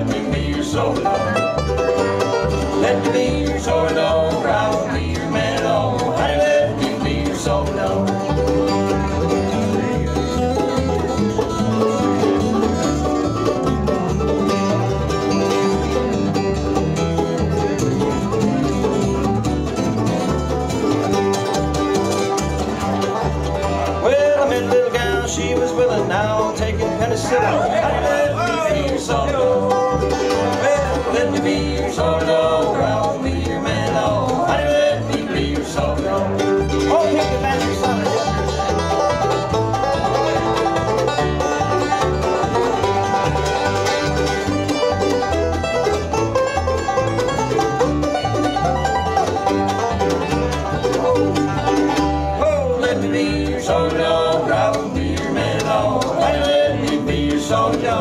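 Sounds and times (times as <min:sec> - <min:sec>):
banjo: 0:00.0 - 0:58.0
bluegrass band playing: 0:00.0 - 0:58.0.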